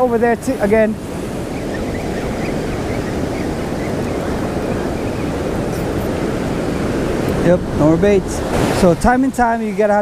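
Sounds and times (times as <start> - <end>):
wind on microphone: 0.0 - 9.7
ocean surf breaking: 0.0 - 10.0.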